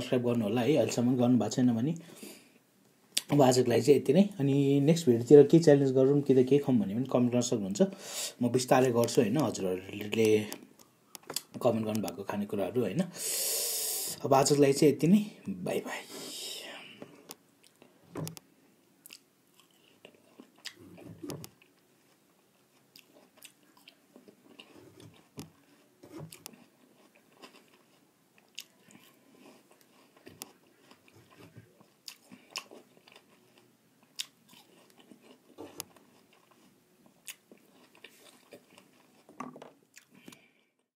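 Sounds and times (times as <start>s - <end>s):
person chewing food: 9.4s - 12.2s, 16.8s - 18.4s, 19.0s - 40.9s.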